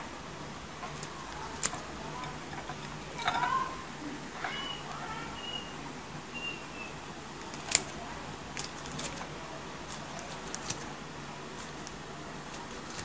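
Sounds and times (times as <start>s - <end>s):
scissors snipping: 0.9s - 3.0s, 7.4s - 8.0s, 8.6s - 9.3s, 9.9s - 10.9s, 11.6s - 13.0s.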